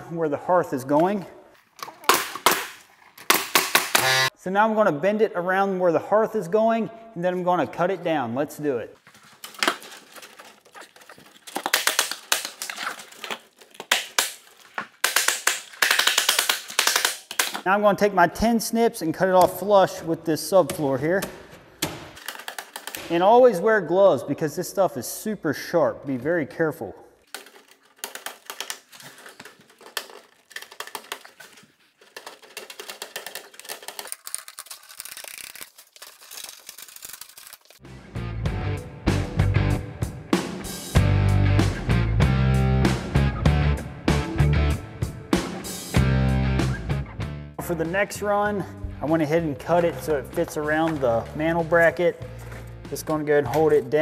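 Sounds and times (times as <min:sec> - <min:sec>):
metal lath crinkling and rattling: 0:09.0 - 0:17.7, 0:22.2 - 0:23.2, 0:27.2 - 0:37.9.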